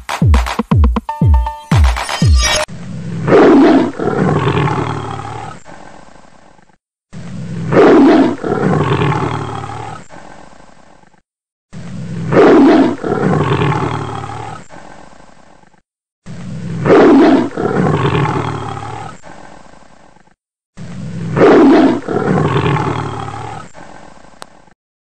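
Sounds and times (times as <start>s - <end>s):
big cat roaring: 3.2s - 5.8s, 7.1s - 10.2s, 11.8s - 14.7s, 16.3s - 19.4s, 20.8s - 23.7s.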